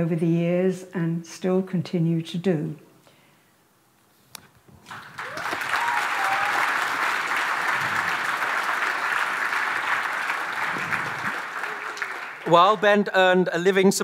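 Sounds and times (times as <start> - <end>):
audience applauding: 4.9 - 13.1.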